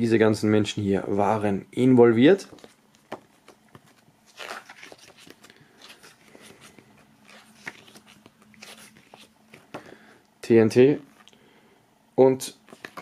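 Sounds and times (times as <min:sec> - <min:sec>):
paper pages rustling: 0:02.5 - 0:10.0, 0:12.6 - 0:13.0.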